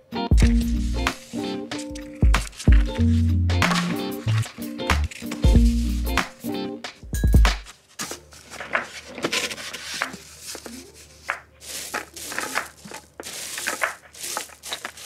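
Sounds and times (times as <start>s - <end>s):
foam boards rubbing and scraping: 0.5s - 5.8s, 7.5s - 15.0s
gravel crunching: 10.4s - 15.0s.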